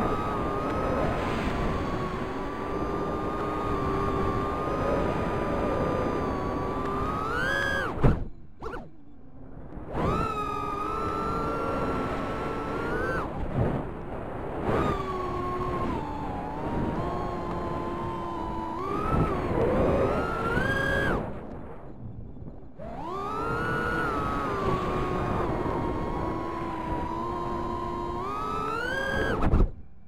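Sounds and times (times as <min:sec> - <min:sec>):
drone motors whining: 0:00.0 - 0:30.0.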